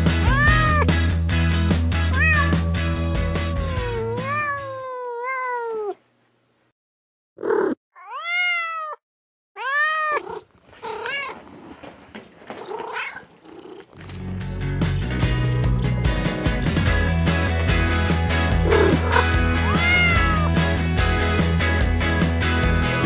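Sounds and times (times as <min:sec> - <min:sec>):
robotic toy cats meowing: 0:00.2 - 0:00.8, 0:02.1 - 0:06.0, 0:07.4 - 0:09.0, 0:09.6 - 0:10.4, 0:18.7 - 0:20.5.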